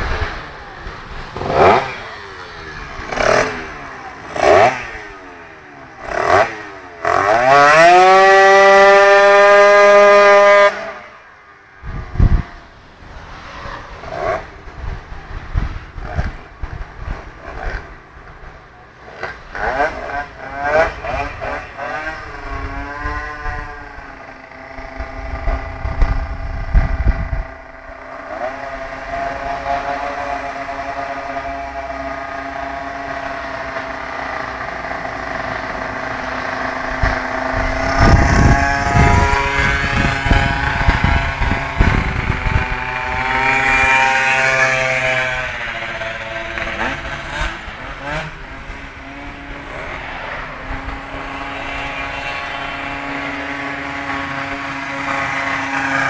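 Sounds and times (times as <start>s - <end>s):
scooter engines revving: 0.0s - 56.0s
wind buffeting microphone: 11.8s - 12.7s, 24.7s - 27.8s, 36.6s - 55.7s.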